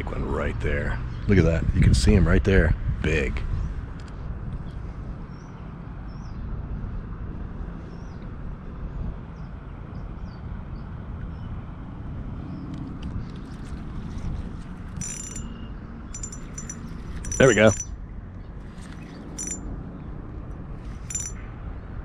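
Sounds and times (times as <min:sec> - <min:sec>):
metallic clink: 0:15.0 - 0:18.0, 0:18.7 - 0:19.7, 0:20.9 - 0:21.4.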